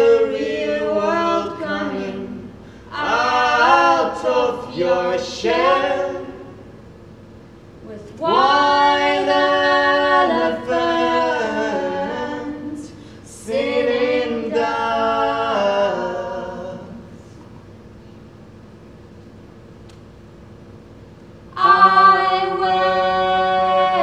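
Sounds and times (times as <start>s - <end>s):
a cappella voices singing chords: 0.0s - 6.8s, 7.8s - 17.3s, 21.5s - 24.0s.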